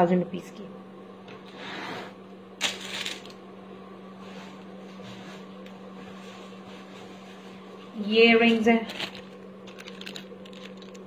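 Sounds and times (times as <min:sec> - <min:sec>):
steady low hum: 0:00.0 - 0:11.0
jewellery packets rustling clatter: 0:08.7 - 0:11.0.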